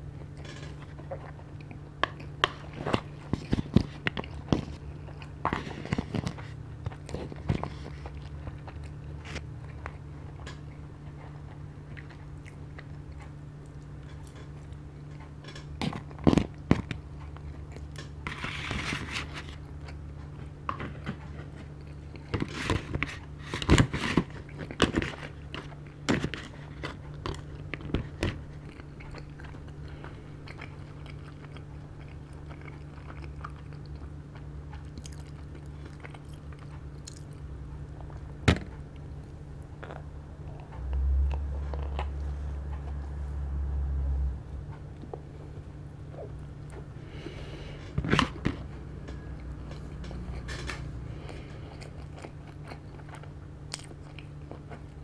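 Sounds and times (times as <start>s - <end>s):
person chewing food: 0.0s - 43.5s, 44.5s - 55.0s
low hum: 22.9s - 55.0s.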